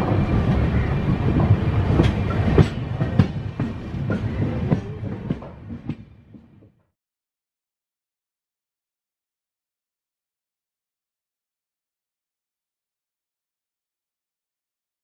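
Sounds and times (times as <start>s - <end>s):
train coaches rumbling: 0.0s - 6.8s
wheel clacks over rail joints: 1.4s - 6.7s.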